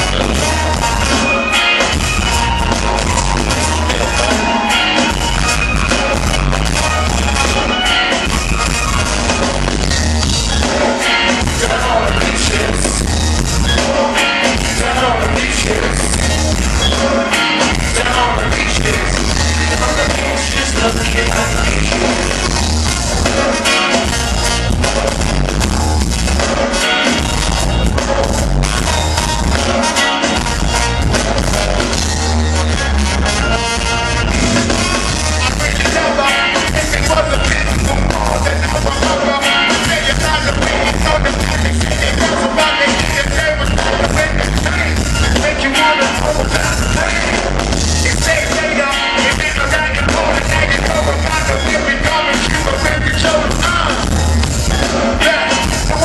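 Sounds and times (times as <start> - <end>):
bass guitar: 0.0 - 56.0
drums: 0.0 - 56.0
live ska band playing: 0.0 - 56.0
man singing into a microphone: 11.4 - 13.1, 13.8 - 16.3, 17.6 - 22.4, 35.3 - 54.1, 55.1 - 56.0.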